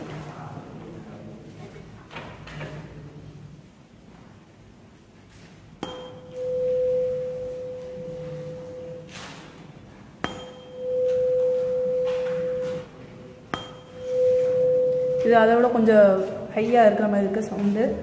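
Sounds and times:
tuning fork clink: 5.8 - 9.2, 10.2 - 15.3
tuning fork pure hum: 5.8 - 9.3, 10.2 - 15.8.

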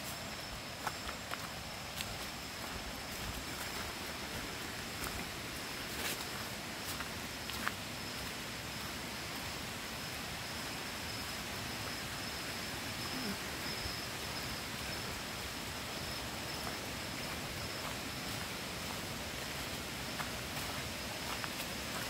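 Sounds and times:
faint footsteps on dirt: 0.0 - 8.9, 16.0 - 22.0
insects droning and hissing: 0.0 - 22.0.

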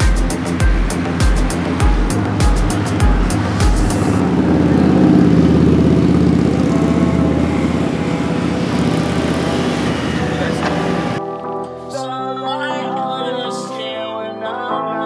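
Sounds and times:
boat engine running: 0.0 - 11.2
music beat: 0.0 - 13.5.

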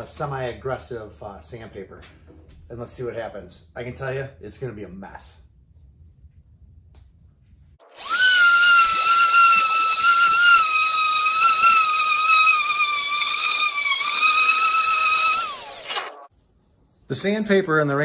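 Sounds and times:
orbital sander whine: 7.9 - 16.3.

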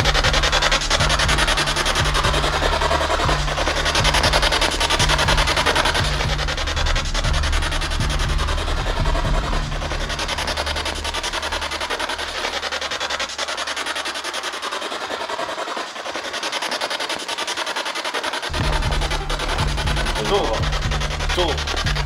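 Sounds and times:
low drone: 0.0 - 22.0
chopped radio static: 18.5 - 22.0.

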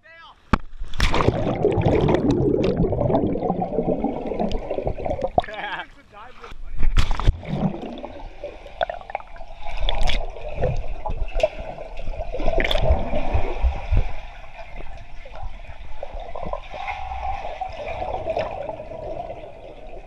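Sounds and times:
low underwater thuds: 0.5 - 5.8, 6.6 - 17.0
muffled underwater water rushing: 0.6 - 20.0
bubbles underwater: 1.0 - 5.6, 7.1 - 20.0.

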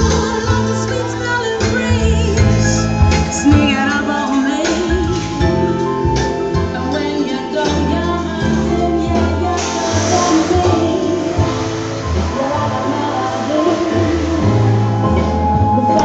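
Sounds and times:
person singing: 0.0 - 16.0
pulsing bass line: 0.0 - 16.0.

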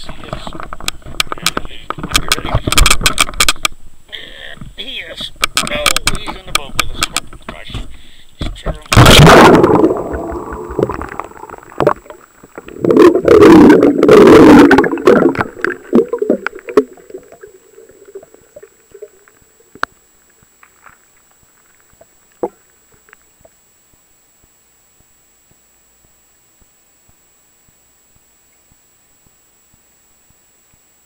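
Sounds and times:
water rushing and gurgling underwater: 9.0 - 21.3
faint ticks: 14.8 - 31.0.

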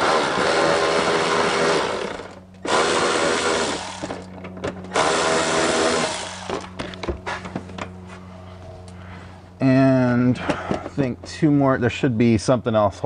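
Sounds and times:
cordless electric ratchet running: 0.0 - 6.8.

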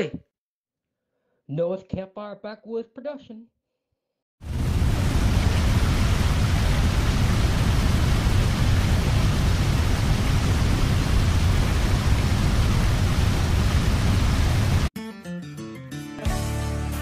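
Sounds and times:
loud rushing noise with rumble: 4.4 - 14.9.

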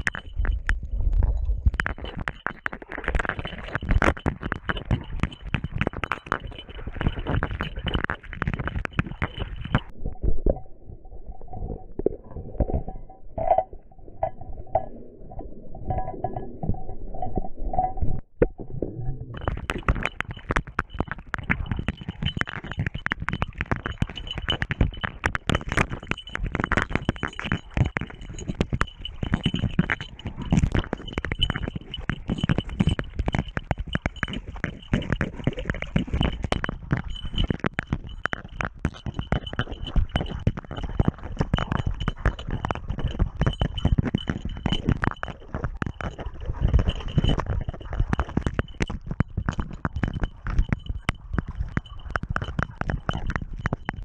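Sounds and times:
thumping and scraping on camera: 0.0 - 10.7, 11.4 - 14.9, 15.8 - 54.0.

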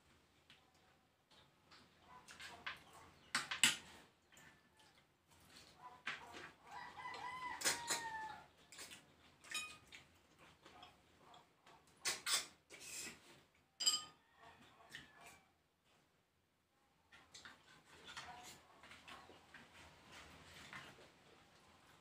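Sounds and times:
rooster crowing: 6.7 - 8.5
eating sucking noises: 11.9 - 13.5.

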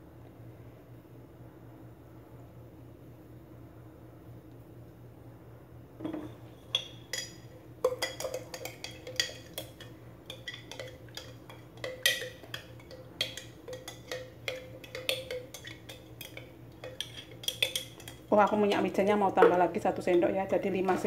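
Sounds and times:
metal spoon clinking against glass jar: 6.7 - 18.7.

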